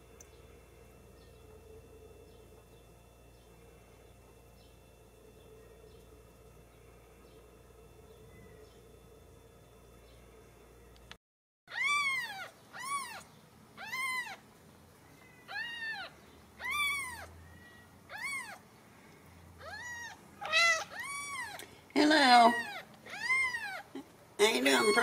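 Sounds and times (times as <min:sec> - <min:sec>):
kittens mewing: 0:11.7 - 0:14.4, 0:15.5 - 0:18.6, 0:19.6 - 0:21.7, 0:22.3 - 0:25.0.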